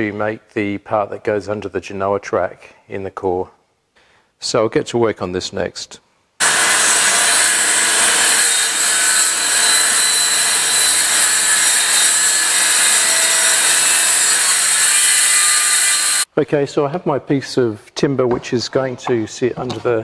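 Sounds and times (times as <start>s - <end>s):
circular saw cutting plywood: 6.4s - 16.3s.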